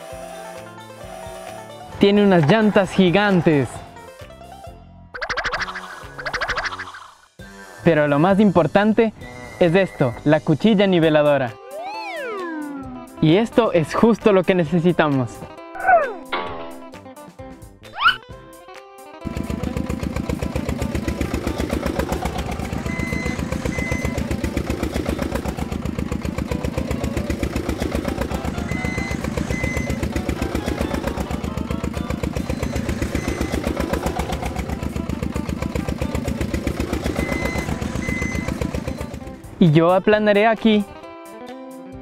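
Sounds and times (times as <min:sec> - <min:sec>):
machine engine running: 0:19.2 - 0:39.6.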